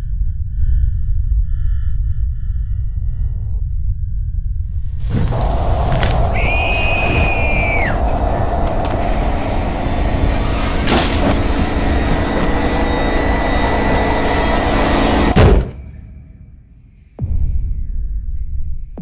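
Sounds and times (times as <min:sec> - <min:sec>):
rumbling drone: 0:00.0 - 0:19.0
steady tones: 0:04.9 - 0:16.3
loud impact hit: 0:05.0 - 0:16.2.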